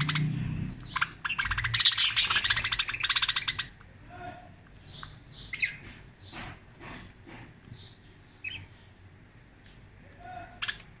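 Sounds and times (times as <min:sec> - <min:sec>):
budgerigars chirping: 0:00.0 - 0:04.0, 0:04.8 - 0:07.1, 0:07.7 - 0:09.0.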